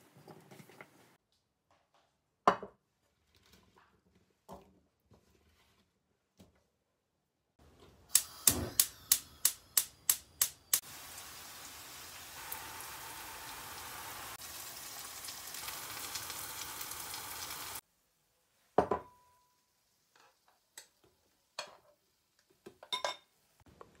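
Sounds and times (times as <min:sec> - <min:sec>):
sharp clicks: 0:08.1 - 0:10.8
vegetables sizzling in oil: 0:08.2 - 0:17.8.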